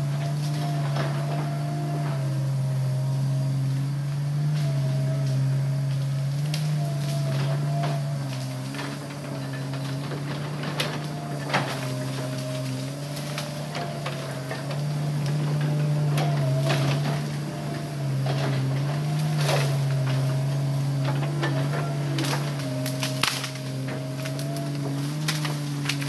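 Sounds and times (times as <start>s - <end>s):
excavator diesel engine droning: 0.0s - 26.0s
sharp knocks and cracks: 6.4s - 26.0s.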